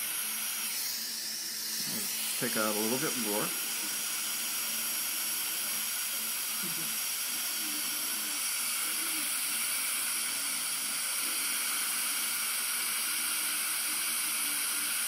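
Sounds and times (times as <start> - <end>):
dental suction hissing: 0.0 - 15.0.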